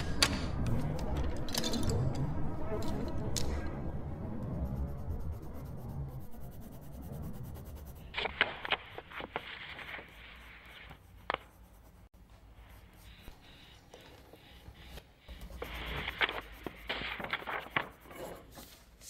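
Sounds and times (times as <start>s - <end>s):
low rumble: 0.0s - 10.3s
short scratching strokes: 4.6s - 13.8s, 14.4s - 19.0s.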